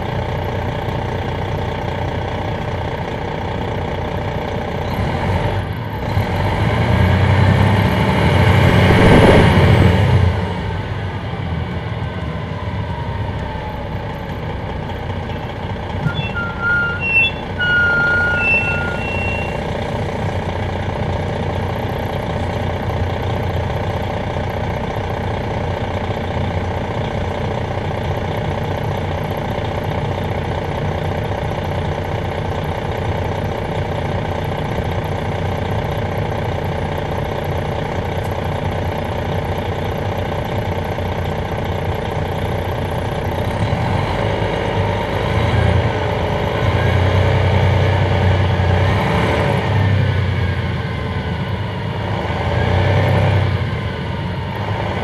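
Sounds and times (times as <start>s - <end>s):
diesel bus engine idling: 0.0s - 7.8s, 10.2s - 49.0s, 49.6s - 55.0s
short beeps: 16.0s - 19.7s.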